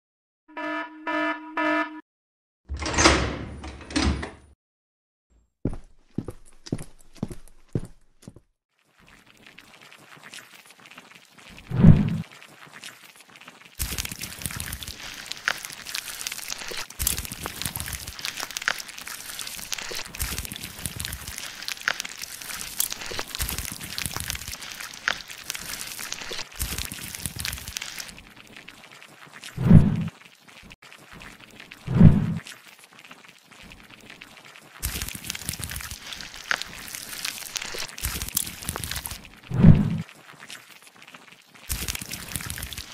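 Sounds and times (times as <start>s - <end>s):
short buzzer beeps: 0.5s - 2.0s
footsteps on hard floor: 5.7s - 8.4s
crackling and crinkling clicks: 8.9s - 42.9s.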